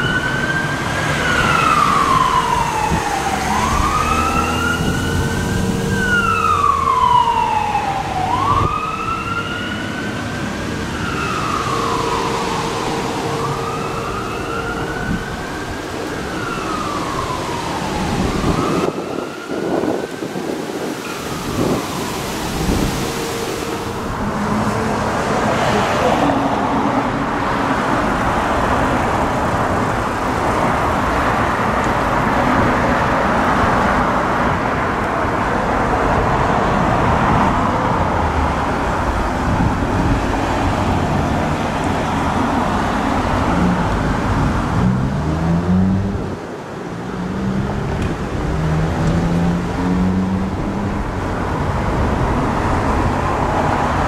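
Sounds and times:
siren wailing: 0:00.0 - 0:26.8
cars driving past: 0:00.0 - 0:54.0.

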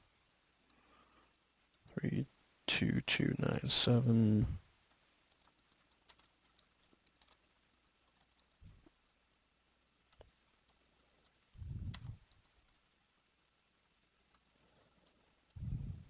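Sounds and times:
typing on computer keyboard: 0:04.8 - 0:08.6, 0:09.9 - 0:12.8.

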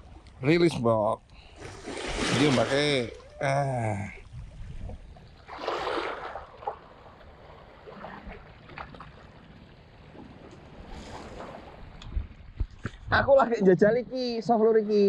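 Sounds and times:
sea water lapping against rocks: 0:01.5 - 0:03.4, 0:04.2 - 0:13.1
wind rumble on microphone: 0:04.2 - 0:05.4, 0:10.1 - 0:13.4.

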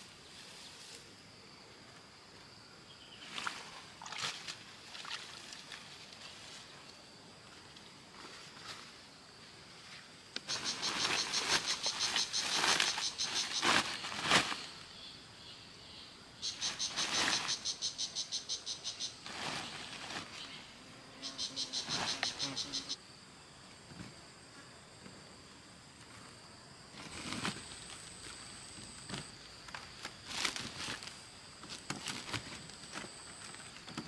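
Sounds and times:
insect calling in rapid pulses: 0:10.4 - 0:23.2.

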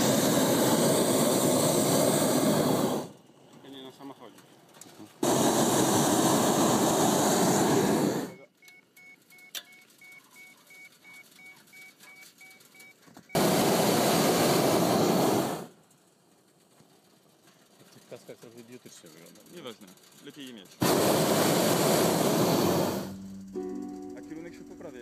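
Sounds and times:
propane burner firing: 0:00.0 - 0:08.4, 0:13.3 - 0:23.6
electronic beep: 0:08.3 - 0:13.0.

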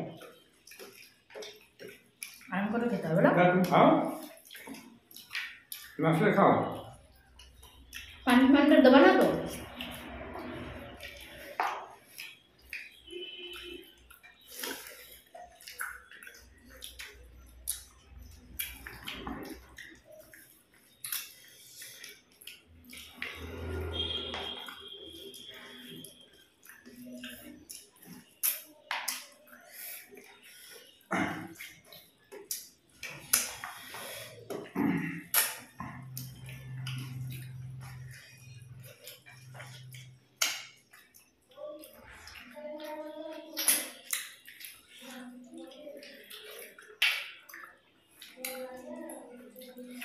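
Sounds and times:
wet squishing of food by hand: 0:00.0 - 0:50.0
mouth smacks: 0:31.1 - 0:41.3.

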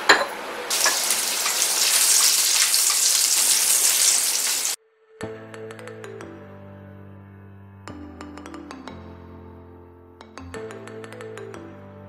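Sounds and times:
hot oil sizzling: 0:00.6 - 0:04.8
bright electronic music with clicking: 0:10.2 - 0:11.9.

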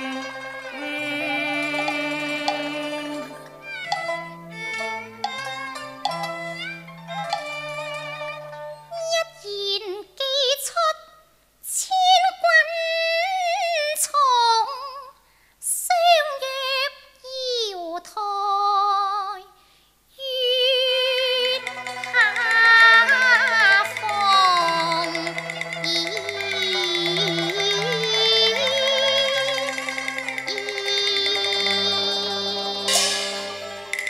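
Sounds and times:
woman singing opera: 0:00.0 - 0:03.9, 0:11.7 - 0:19.5, 0:20.2 - 0:33.2
accompanying ensemble: 0:21.3 - 0:34.0.

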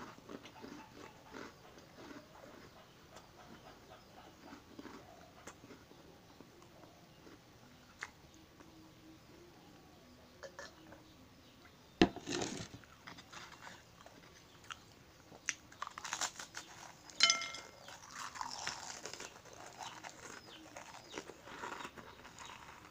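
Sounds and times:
biscuit crunching and chewing: 0:00.0 - 0:08.4, 0:12.4 - 0:22.9
ringing clink: 0:17.2 - 0:17.9.

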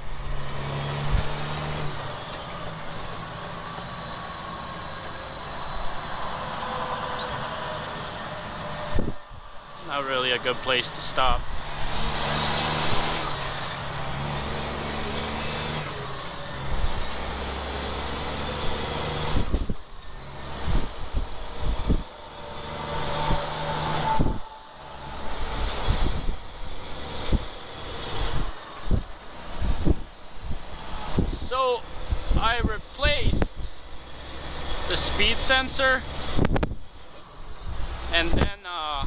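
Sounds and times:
truck diesel engine running: 0:00.0 - 0:38.4.

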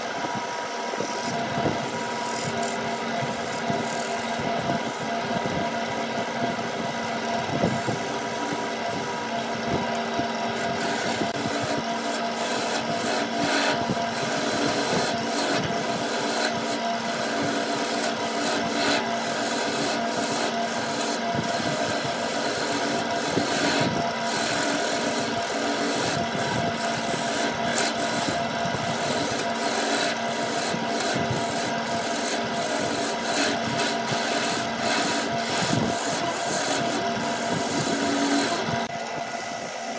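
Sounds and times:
chisel scraping spinning wood: 0:00.0 - 0:39.9
wood lathe humming: 0:00.0 - 0:39.9.

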